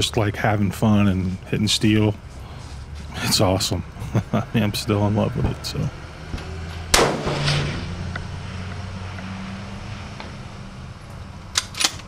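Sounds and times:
rifle shot echoing: 6.9 - 7.6.

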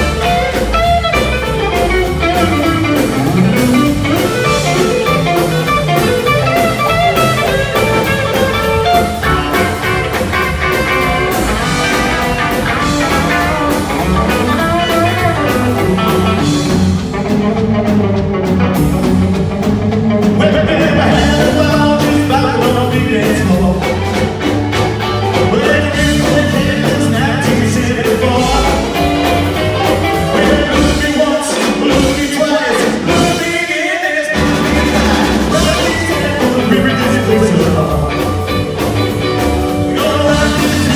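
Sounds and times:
slapped upright bass: 0.0 - 33.5, 34.3 - 40.9
rockabilly band playing: 0.0 - 40.9
person singing: 20.2 - 38.9, 39.6 - 40.9.

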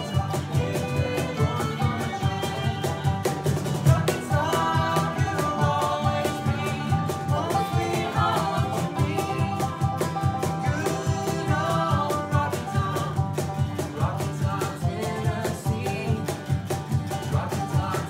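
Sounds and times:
bluegrass band playing: 0.0 - 18.0
person singing: 0.0 - 18.0.

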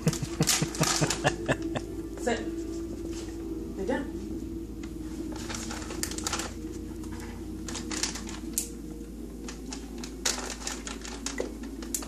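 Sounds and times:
plastic pouch crinkling: 0.0 - 1.8, 5.3 - 12.0.

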